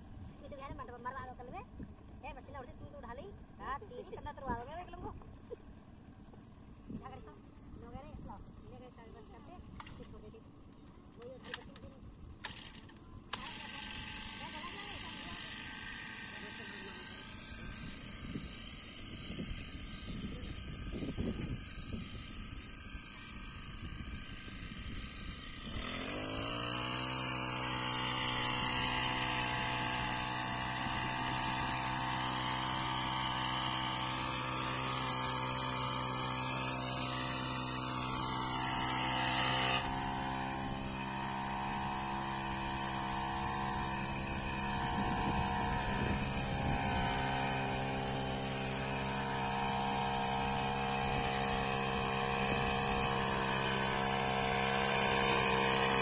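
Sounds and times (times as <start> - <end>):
small petrol engine running: 0.0 - 56.0.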